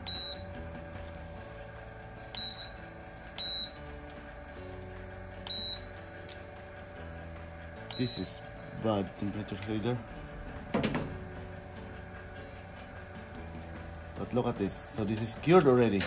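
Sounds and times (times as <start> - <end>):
thermometer gun short high beeps: 0.1 - 0.4, 2.4 - 2.7, 3.4 - 3.8, 5.5 - 5.8, 7.9 - 8.3.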